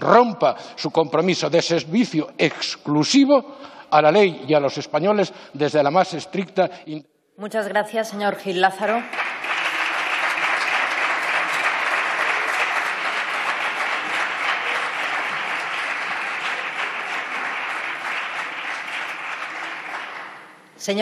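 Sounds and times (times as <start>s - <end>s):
many hands clapping: 9.0s - 20.7s.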